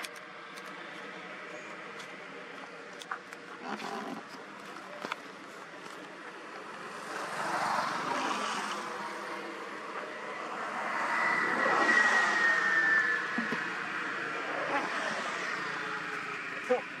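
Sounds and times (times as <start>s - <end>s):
high whine: 0.0s - 17.0s
passing vehicle engine: 6.6s - 17.0s.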